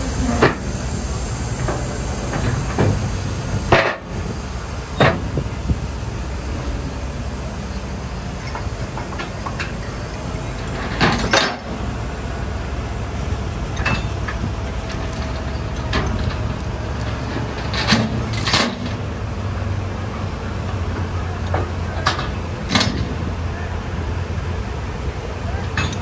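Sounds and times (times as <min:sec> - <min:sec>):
heavy vehicles idling: 0:00.0 - 0:26.0
metallic clanks of chains: 0:14.9 - 0:18.9, 0:25.8 - 0:26.0.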